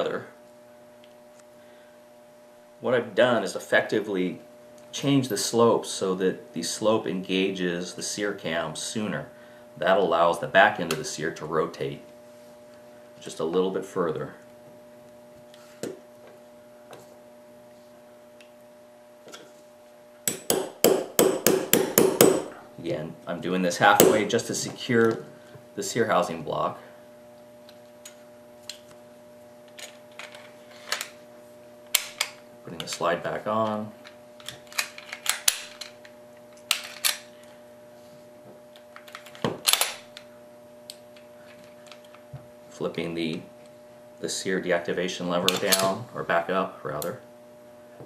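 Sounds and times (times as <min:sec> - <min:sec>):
steady electrical hum: 0:00.0 - 0:48.0
hammer tapping metal punch: 0:20.2 - 0:22.6, 0:23.9 - 0:24.3.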